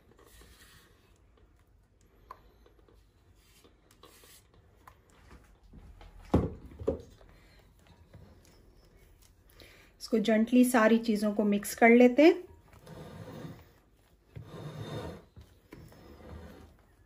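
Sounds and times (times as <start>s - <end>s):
spatula scraping bowl: 12.6s - 17.0s.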